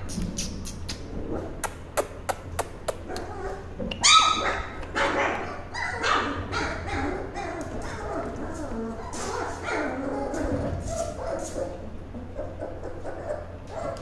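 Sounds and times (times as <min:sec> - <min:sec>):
puppies yipping and whimpering: 0:02.9 - 0:14.0
loud high puppy yelp: 0:03.3 - 0:11.7.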